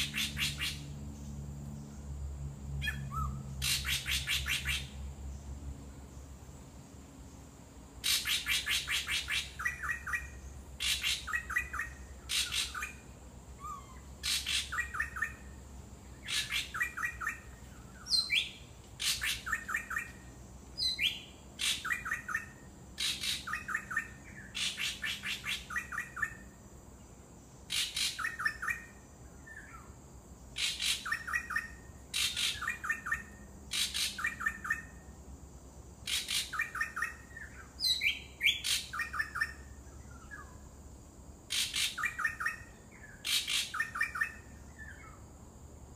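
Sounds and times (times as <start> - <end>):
bird harsh rattling calls: 2.8 - 4.9.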